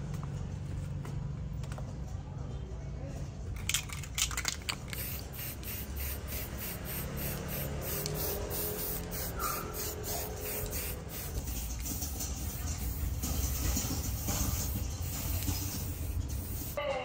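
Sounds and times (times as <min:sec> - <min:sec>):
spray can hissing: 0:04.2 - 0:16.8.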